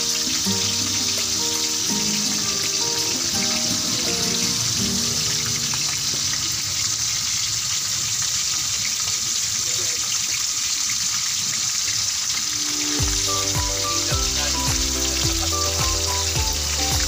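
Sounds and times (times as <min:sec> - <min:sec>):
background music: 0:00.0 - 0:06.2, 0:12.5 - 0:17.0
fish frying in hot oil: 0:00.0 - 0:17.0.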